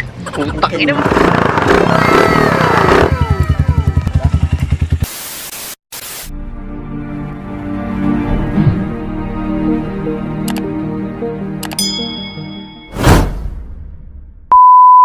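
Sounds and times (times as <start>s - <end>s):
motorcycle engine running: 0.8s - 5.1s
intro music with steady tones: 6.3s - 12.9s
music: 6.3s - 14.0s.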